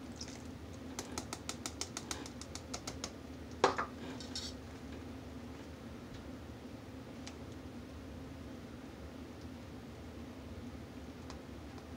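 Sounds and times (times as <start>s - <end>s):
faint steady hum: 0.0s - 11.9s
cup knocking on countertop: 3.6s - 3.9s.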